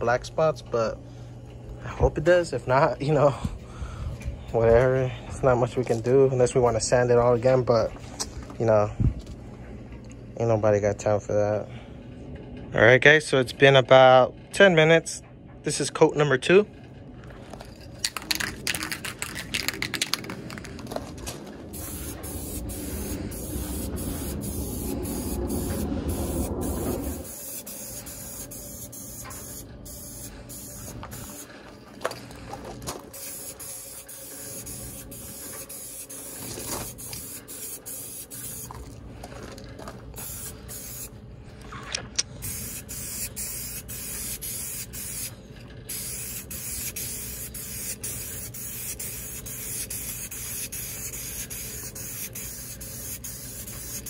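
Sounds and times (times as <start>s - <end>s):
low rumble: 16.9s - 35.5s
spray paint can hissing: 18.0s - 20.8s, 21.7s - 31.5s, 33.1s - 38.8s, 40.2s - 41.1s, 42.4s - 45.3s, 45.9s - 54.0s.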